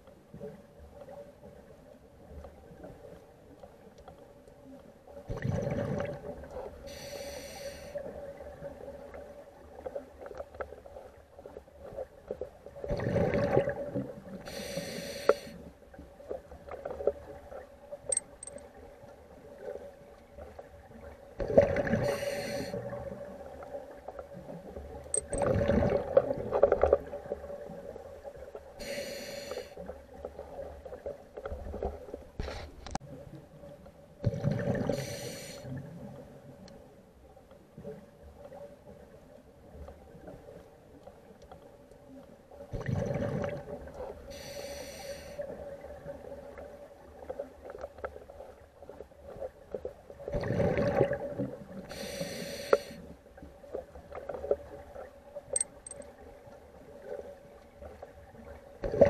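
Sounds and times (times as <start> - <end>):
short breathy hiss: 6.9 - 8.0, 14.5 - 15.6, 22.1 - 22.8, 28.8 - 29.8, 34.9 - 35.7, 44.3 - 45.4, 51.9 - 53.0.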